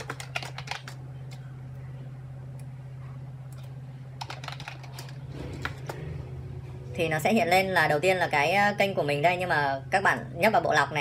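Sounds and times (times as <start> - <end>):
keyboard keys clicking: 0.0 - 1.0, 3.6 - 6.0
steady low hum: 0.0 - 11.0.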